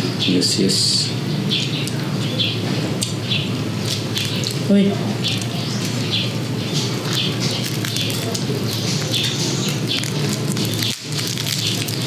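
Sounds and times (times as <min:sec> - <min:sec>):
crispy pork skin crunching: 0:03.8 - 0:12.0.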